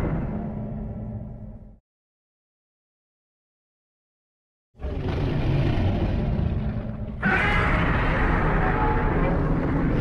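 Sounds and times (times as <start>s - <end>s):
monster roar: 4.8s - 10.0s.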